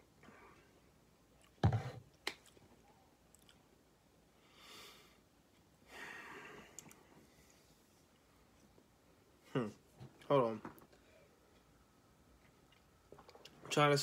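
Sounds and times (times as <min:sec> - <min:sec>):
plastic bottle thump on table: 0:01.6 - 0:02.0
soft breaths: 0:04.2 - 0:10.2, 0:10.9 - 0:12.7.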